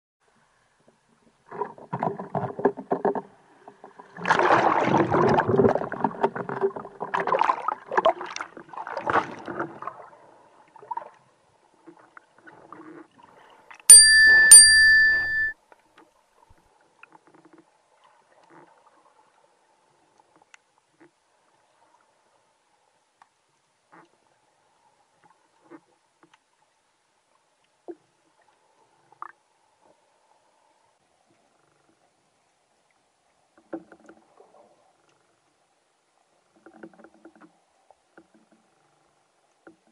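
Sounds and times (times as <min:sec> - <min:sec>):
water splashing and bubbling: 0:01.4 - 0:13.4
bright metallic strikes: 0:13.9 - 0:15.5.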